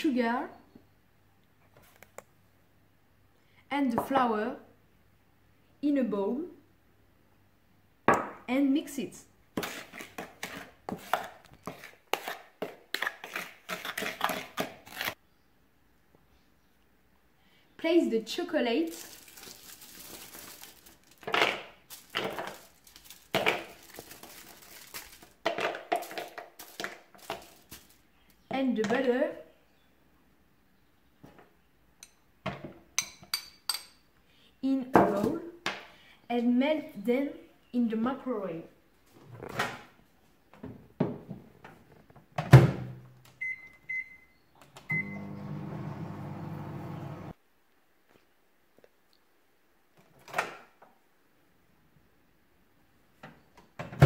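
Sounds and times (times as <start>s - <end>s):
aluminium foil crinkling: 18.8s - 28.0s
pieces clattering into plastic bowl: 18.9s - 28.0s
microwave oven humming: 44.9s - 47.3s.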